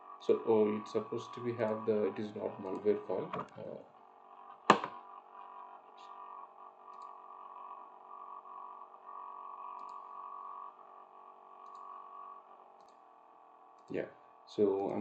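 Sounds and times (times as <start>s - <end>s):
steady electrical hum: 0.0s - 15.0s
faint ticks: 6.9s - 7.2s, 9.7s - 10.6s, 11.6s - 12.1s, 12.8s - 13.0s.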